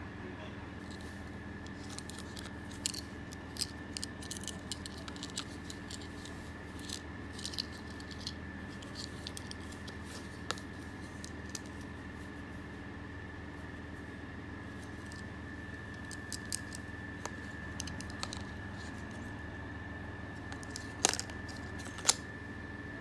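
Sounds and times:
sheath handling clicks and taps: 20.5 - 22.2.

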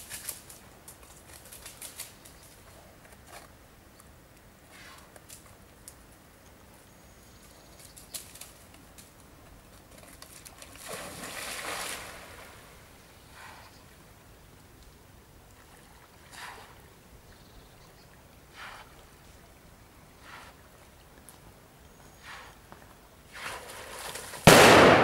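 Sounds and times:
animal splashing in river: 9.9 - 13.6, 23.3 - 25.0.

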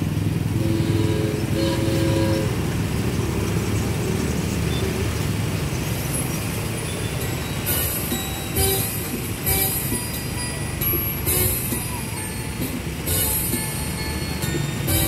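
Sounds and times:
ride music: 0.0 - 2.9, 5.9 - 15.0
ride carriages rattling on track: 0.0 - 15.0.

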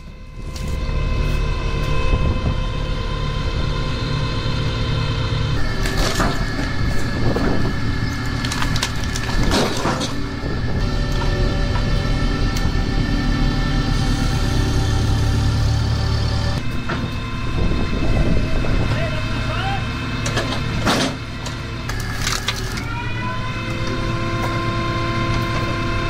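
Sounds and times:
wood splitter humming: 0.0 - 26.0
wood cracking and splintering: 5.6 - 10.3, 20.9 - 23.0.

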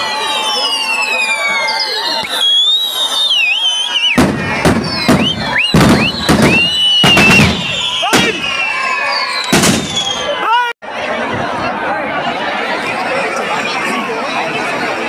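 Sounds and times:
fireworks whistling: 0.0 - 10.4
fireworks bangs: 3.9 - 10.3.

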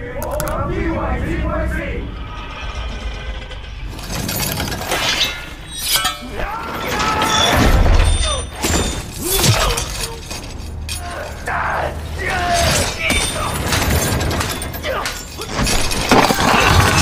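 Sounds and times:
sword blades clashing: 4.9 - 11.4.

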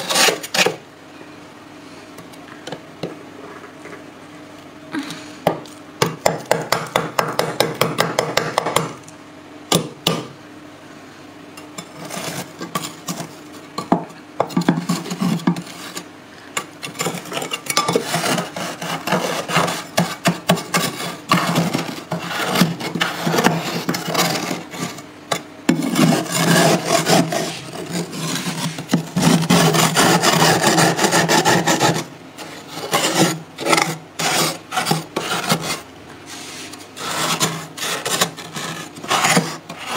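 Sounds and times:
metal spoon scraping frost: 0.0 - 0.8, 11.8 - 13.4, 14.7 - 25.0, 25.7 - 39.9.

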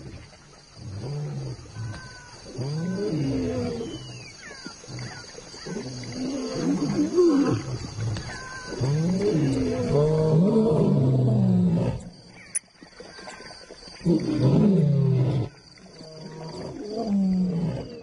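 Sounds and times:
lions growling: 0.8 - 4.3, 4.9 - 12.1.

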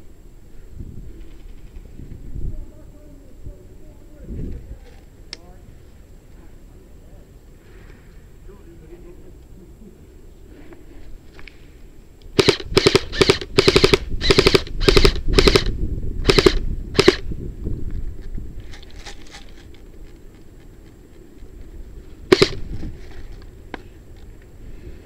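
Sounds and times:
airsoft rifle bursts: 12.4 - 17.2, 22.3 - 22.6.

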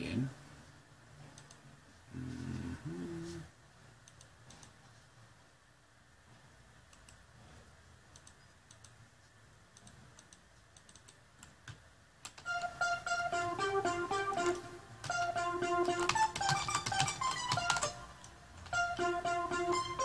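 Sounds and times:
keyboard or mouse clicking: 8.1 - 9.0, 9.8 - 12.6, 15.8 - 18.9
plucked-string melody: 12.5 - 18.1, 18.7 - 20.0.

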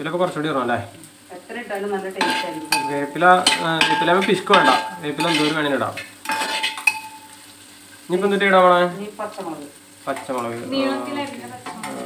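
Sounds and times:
light sizzle: 0.0 - 12.0
metal spatula scraping a pan: 2.2 - 7.4.

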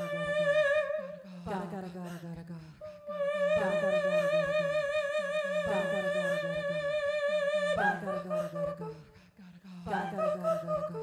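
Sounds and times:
woman singing long high note: 0.0 - 1.3, 2.9 - 8.7
looped vocal phrases: 0.0 - 11.0.

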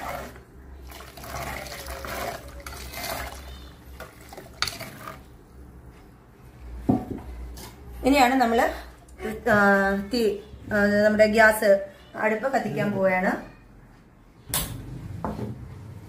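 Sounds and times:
water pouring into pot: 0.0 - 5.3.

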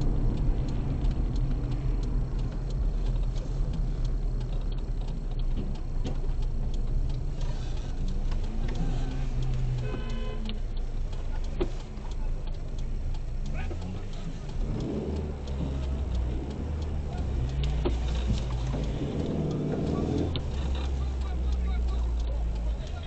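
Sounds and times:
engine and road hum: 0.0 - 23.0
light ticking: 0.0 - 23.0.

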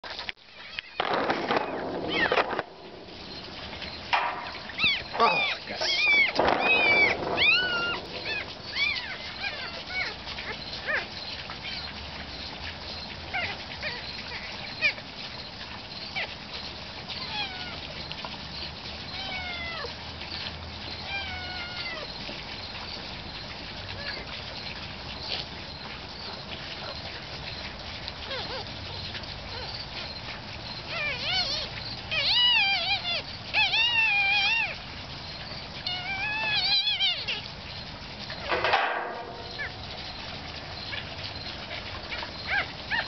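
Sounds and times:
puppy crying in squeals: 2.1 - 2.5, 4.7 - 11.9, 13.3 - 15.0, 16.1 - 16.4, 17.1 - 17.8, 19.1 - 19.9, 21.0 - 22.2, 28.2 - 29.8, 30.9 - 34.8, 35.8 - 37.5, 41.6 - 43.0.

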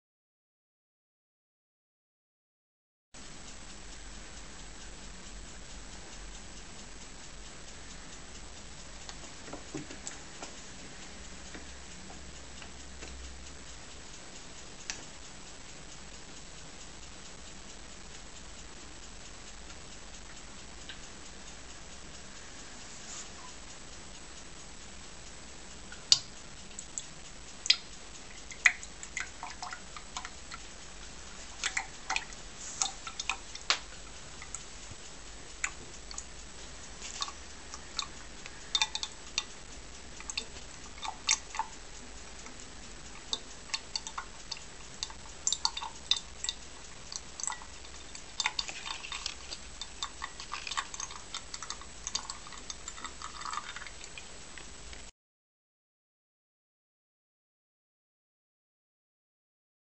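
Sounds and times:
steady liquid hiss: 3.2 - 55.1
liquid dripping into glass beaker: 27.6 - 34.6, 37.0 - 39.6, 40.2 - 41.8, 42.9 - 54.7.

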